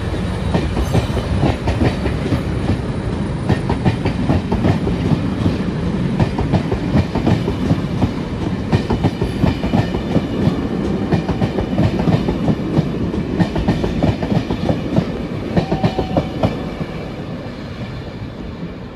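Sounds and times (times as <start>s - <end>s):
train wheels clattering over rail joints: 0.0s - 2.8s.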